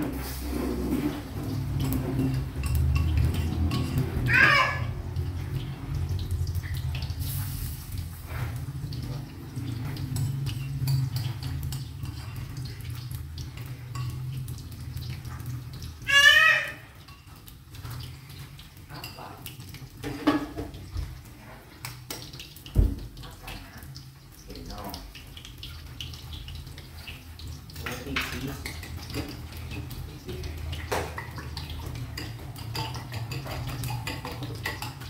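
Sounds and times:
utensil clinking against bowl: 1.8 - 4.2, 30.7 - 35.0.

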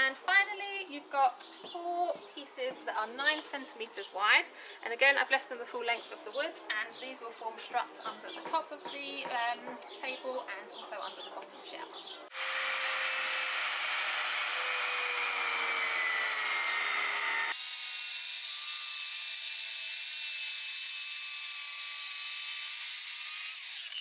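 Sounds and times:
circular saw cutting board: 12.3 - 24.0.

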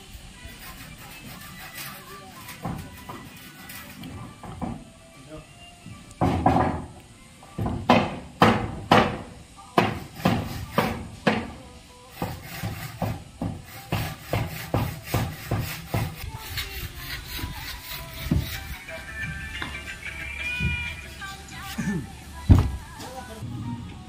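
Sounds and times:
handsaw cutting wood: 0.5 - 4.1, 12.1 - 19.2
wooden planks knocking: 6.2 - 7.0, 7.6 - 11.5, 22.5 - 22.9.

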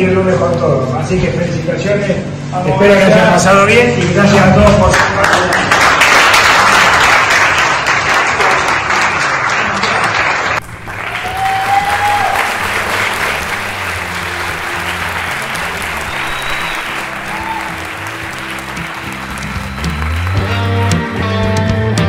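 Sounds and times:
people applauding: 4.6 - 21.2
background music with bass line: 10.7 - 22.0.

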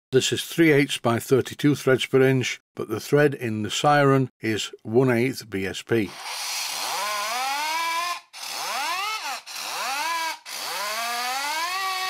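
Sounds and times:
steam siren wailing: 6.8 - 12.0.

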